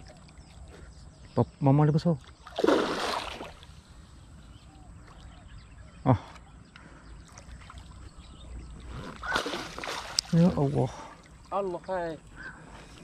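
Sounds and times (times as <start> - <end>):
fish splashing at water surface: 2.5 - 3.6, 9.2 - 10.4.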